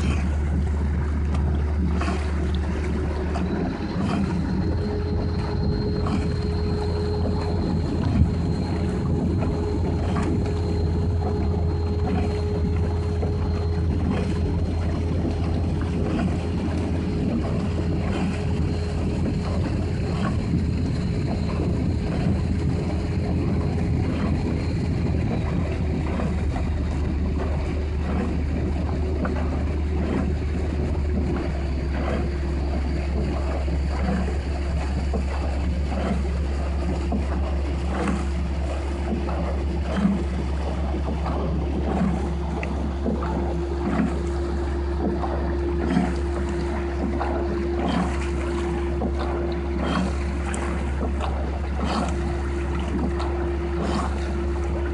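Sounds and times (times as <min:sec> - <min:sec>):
outboard engine running: 0:00.0 - 0:54.9
water and wind noise: 0:00.0 - 0:54.9.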